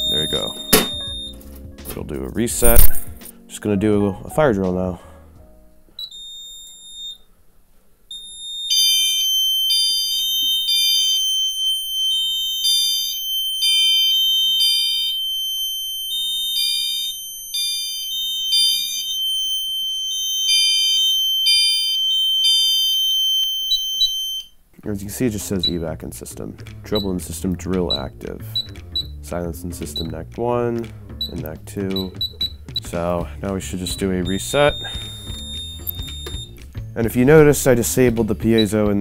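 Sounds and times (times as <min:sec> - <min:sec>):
fire alarm horn pulses: 0:00.0 - 0:01.4, 0:08.1 - 0:24.5, 0:33.8 - 0:36.5
short electronic beep: 0:00.0 - 0:01.4, 0:02.7 - 0:03.1, 0:33.8 - 0:36.6
steady high-pitched alarm tone: 0:00.0 - 0:01.4, 0:08.1 - 0:24.5, 0:33.7 - 0:36.6.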